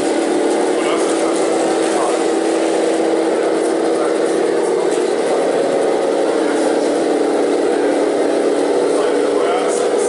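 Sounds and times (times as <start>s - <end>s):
simulated engine drone from loudspeaker: 0.0s - 10.0s.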